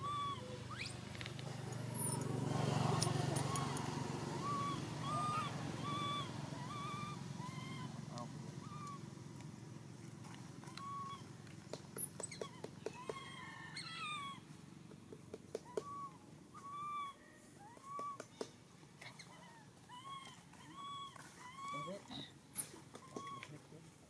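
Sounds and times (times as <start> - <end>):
infant monkey crying: 0.0 - 1.0, 2.9 - 9.1, 10.6 - 11.3, 12.3 - 14.5, 15.6 - 18.3, 19.0 - 23.6.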